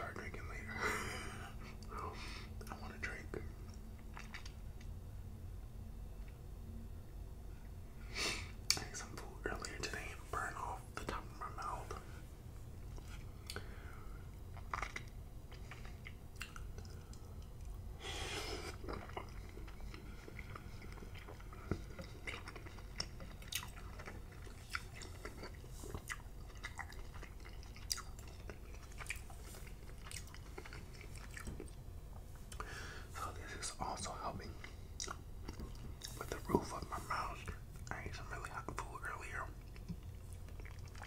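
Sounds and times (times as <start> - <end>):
low steady hum: 0.0 - 41.0
wet mouth chewing smacks: 14.5 - 17.8, 18.7 - 31.8, 39.6 - 41.0.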